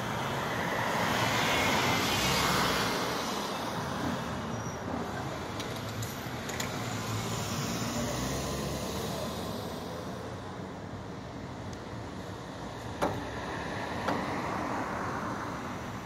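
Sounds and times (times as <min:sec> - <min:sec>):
road traffic: 0:00.0 - 0:16.0.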